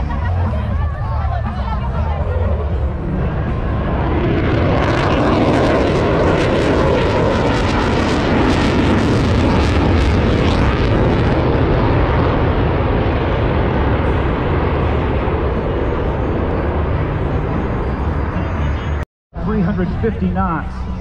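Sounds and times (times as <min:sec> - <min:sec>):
fighter jet passing overhead: 0:00.8 - 0:19.0.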